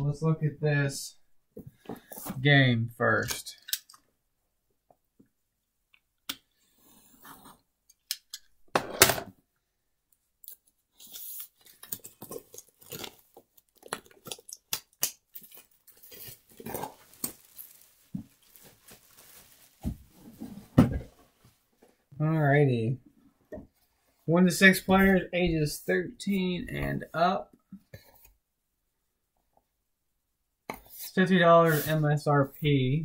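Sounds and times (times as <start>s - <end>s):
packaging tearing and crinkling: 10.4s - 20.0s.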